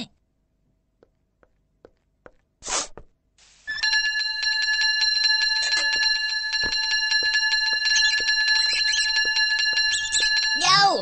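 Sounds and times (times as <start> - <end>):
short hissing burst: 2.6 - 3.7
bell ringing: 3.7 - 11.0.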